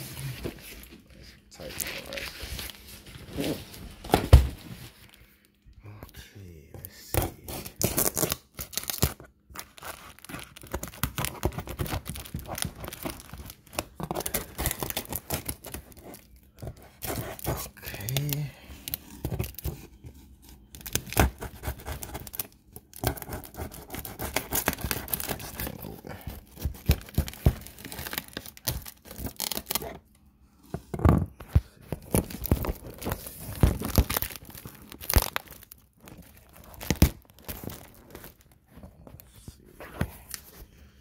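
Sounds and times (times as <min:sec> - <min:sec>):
packing tape ripping: 0:07.5 - 0:16.2, 0:32.0 - 0:38.3.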